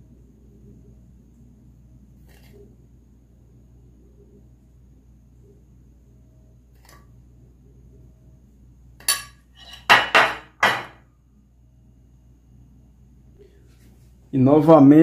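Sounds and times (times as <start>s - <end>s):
metal spoon scraping glass dish: 9.1s - 9.9s.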